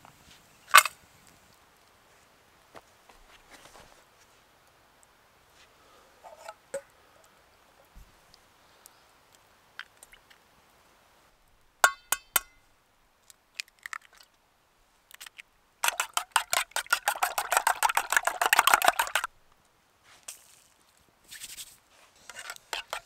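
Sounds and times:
utensil beating eggs in pot: 0:15.8 - 0:19.3, 0:22.3 - 0:23.0.

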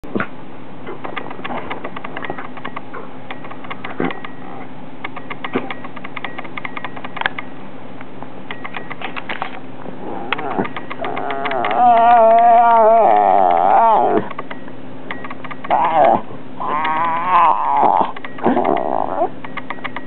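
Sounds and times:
steady hum: 0:00.0 - 0:20.0
dog whining: 0:10.0 - 0:14.4, 0:15.6 - 0:19.4.

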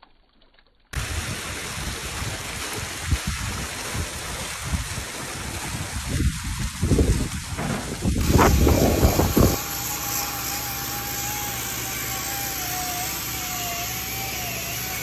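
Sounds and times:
fountain water rushing: 0:00.9 - 0:15.0
wind buffeting microphone: 0:01.0 - 0:09.6
power tool grinding stone: 0:08.2 - 0:15.0.

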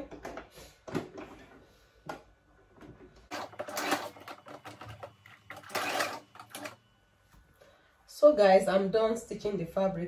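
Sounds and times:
electric sewing machine stitching: 0:03.3 - 0:06.8.

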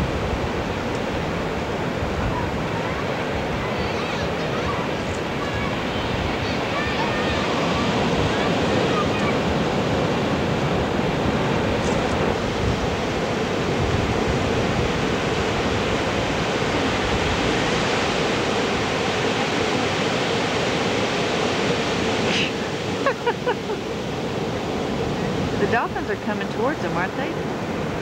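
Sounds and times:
ocean surf breaking: 0:00.0 - 0:28.0.

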